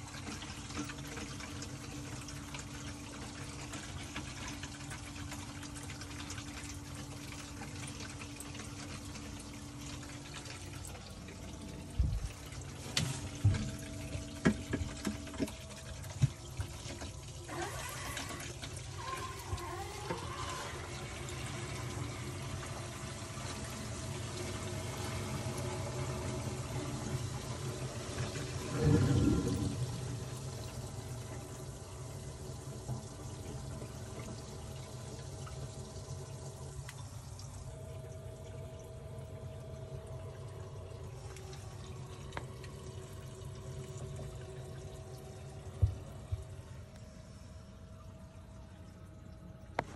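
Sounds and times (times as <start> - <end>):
water running and splashing: 0.0 - 37.8
steady hum: 5.4 - 49.9.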